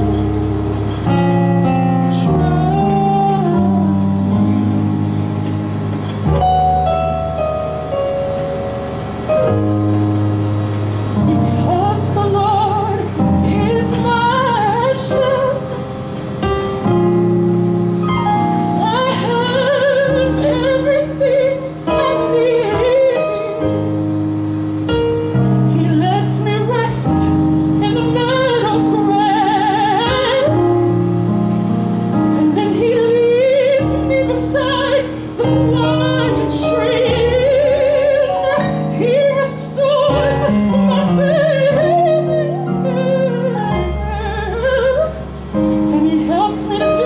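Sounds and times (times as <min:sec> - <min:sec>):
electronic keyboard chords: 0:00.0 - 0:47.0
woman singing operatically: 0:01.9 - 0:04.9, 0:11.2 - 0:15.9, 0:18.7 - 0:24.0, 0:25.6 - 0:31.0, 0:32.2 - 0:47.0.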